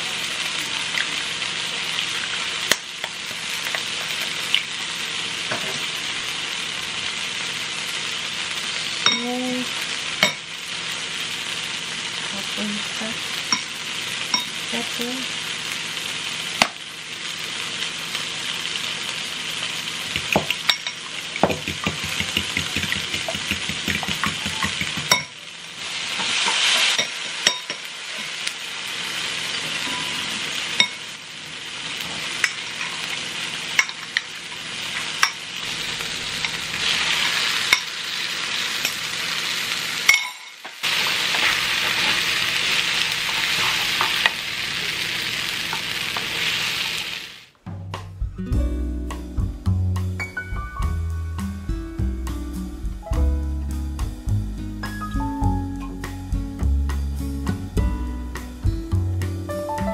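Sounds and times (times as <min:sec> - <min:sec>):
vegetables sizzling in a frying pan: 0:00.0 - 0:47.6
fork beating eggs in glass bowl: 0:21.5 - 0:25.2.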